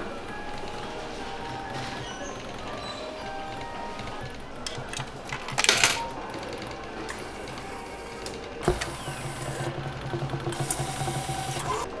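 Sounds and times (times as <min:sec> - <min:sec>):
claw machine motor hum: 0:06.1 - 0:12.0.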